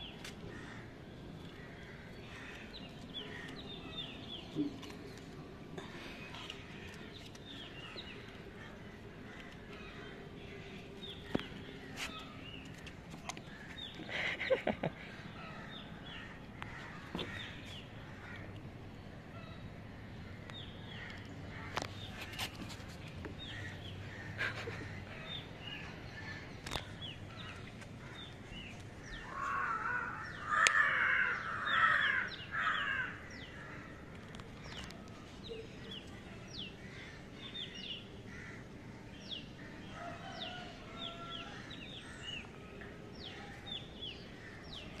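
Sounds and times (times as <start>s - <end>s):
birds chirping: 0.0s - 45.0s.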